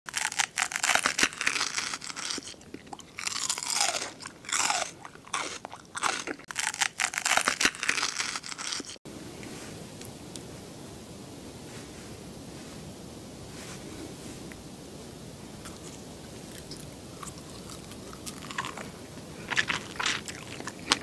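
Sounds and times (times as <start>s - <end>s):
crunchy chewing: 0.1s - 10.4s, 15.6s - 21.0s
faint steady hiss: 9.0s - 21.0s.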